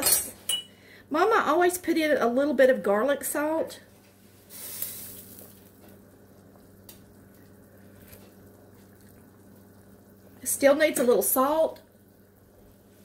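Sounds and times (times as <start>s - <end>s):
steady low hum: 0.4s - 13.0s
stew simmering hiss: 3.2s - 13.0s.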